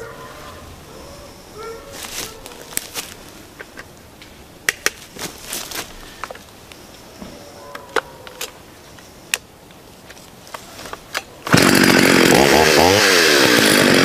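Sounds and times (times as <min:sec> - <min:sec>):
rustling in leaf litter: 0:00.1 - 0:03.5, 0:05.0 - 0:06.6.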